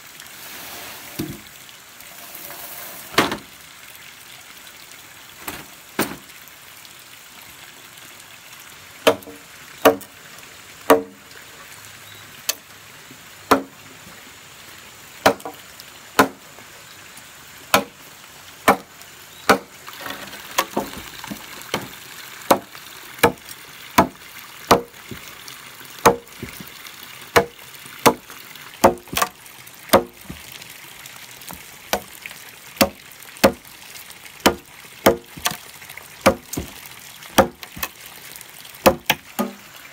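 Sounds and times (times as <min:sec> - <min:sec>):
blade chopping bamboo: 0:09.0 - 0:10.0, 0:10.9 - 0:11.2, 0:15.2 - 0:15.6, 0:16.2 - 0:16.4, 0:17.7 - 0:17.9, 0:18.7 - 0:18.9, 0:19.5 - 0:19.7, 0:22.5 - 0:23.4, 0:24.0 - 0:25.3, 0:26.0 - 0:26.7, 0:27.4 - 0:28.2, 0:28.8 - 0:30.5, 0:32.8 - 0:33.6, 0:34.4 - 0:35.6, 0:36.2 - 0:36.8, 0:37.4 - 0:38.0, 0:38.9 - 0:39.6.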